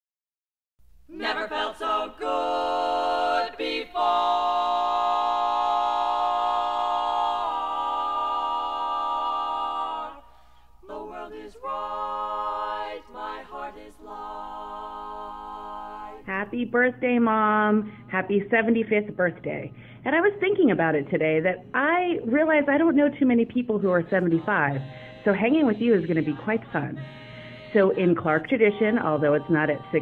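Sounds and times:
women singing in close harmony: 1.1s - 16.6s, 23.9s - 30.0s.

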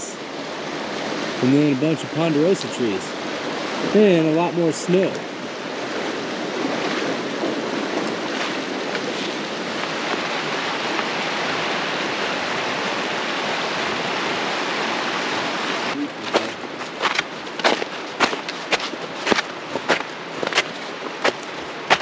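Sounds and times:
river water rushing: 0.0s - 22.0s
sharp footsteps: 16.2s - 22.0s.

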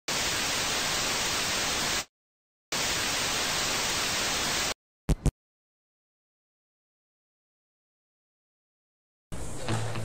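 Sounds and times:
television static hiss: 2.8s - 4.7s.

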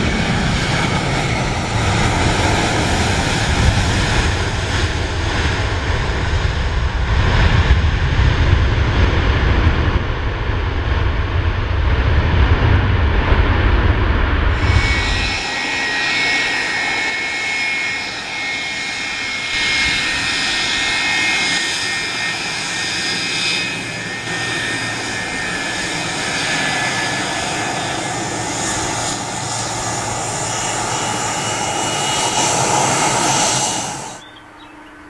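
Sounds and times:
jet engine whine and rush: 0.0s - 35.0s.

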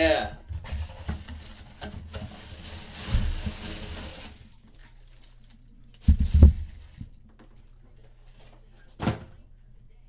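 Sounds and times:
packaging crinkling: 0.9s - 7.8s.

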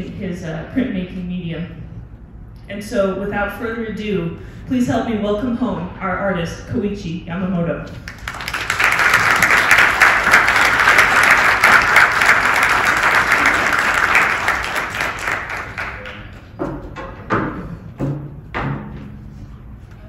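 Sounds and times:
audience applause: 8.1s - 16.4s.

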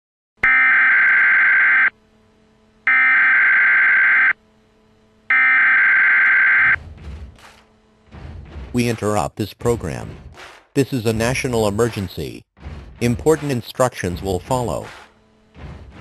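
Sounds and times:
harsh digital screeching tones: 0.5s - 1.9s, 2.9s - 4.4s, 5.3s - 6.8s.

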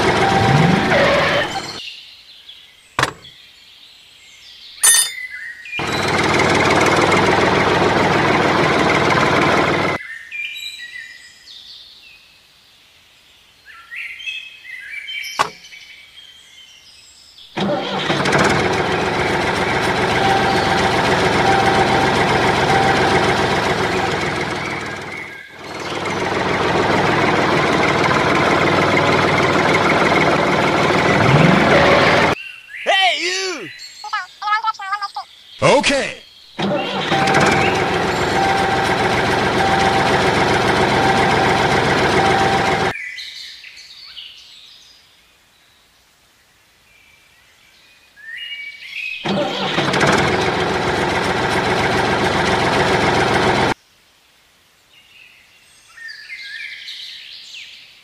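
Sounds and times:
small motor running: 0.0s - 1.8s, 36.6s - 42.9s
birds chirping: 0.0s - 1.9s, 4.5s - 6.5s, 19.6s - 42.9s.

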